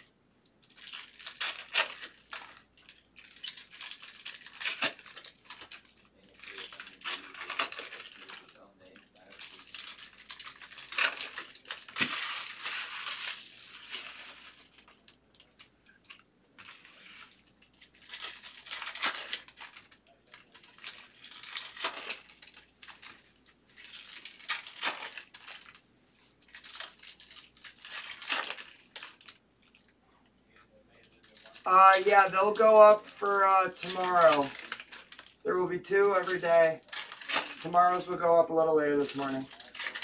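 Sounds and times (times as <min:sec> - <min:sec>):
foil wrappers crinkling and tearing: 0:00.6 - 0:25.8, 0:26.4 - 0:29.8, 0:30.9 - 0:40.0.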